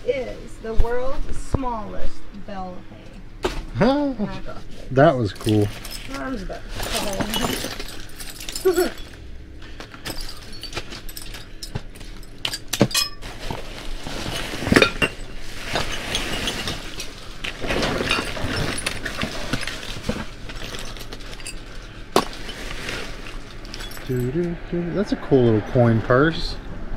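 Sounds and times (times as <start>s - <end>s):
hard objects clattering and clinking: 5.2s - 24.5s.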